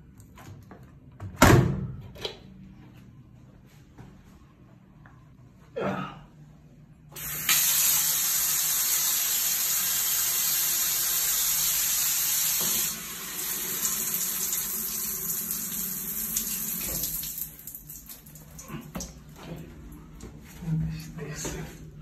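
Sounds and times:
shower water gushing: 0:07.2 - 0:21.9.

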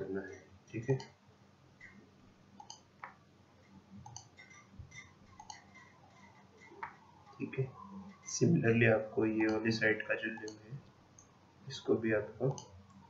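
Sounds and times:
computer mouse clicks: 0:02.6 - 0:03.2, 0:04.0 - 0:07.0, 0:12.5 - 0:13.0.

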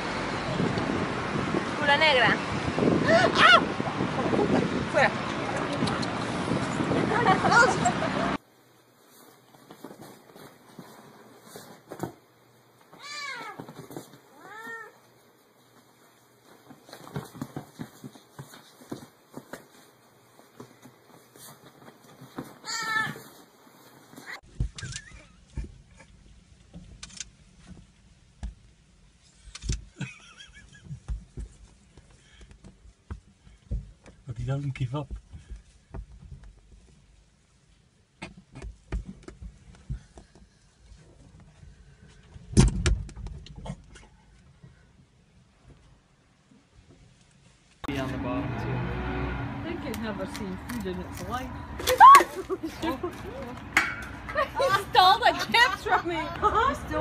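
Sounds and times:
cat meowing loudly: 0:13.0 - 0:13.6
taps and scuffles: 0:15.7 - 0:24.8, 0:30.8 - 0:34.2.

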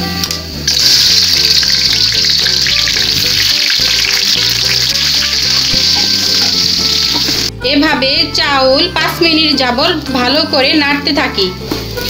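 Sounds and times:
background music: 0:00.0 - 0:12.0
onion sizzling in hot oil: 0:00.5 - 0:07.5, 0:11.6 - 0:12.0.

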